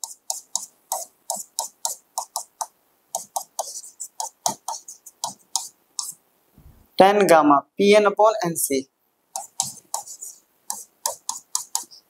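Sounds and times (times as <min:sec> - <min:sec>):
pen tapping on screen: 0:00.0 - 0:06.2, 0:09.4 - 0:12.0.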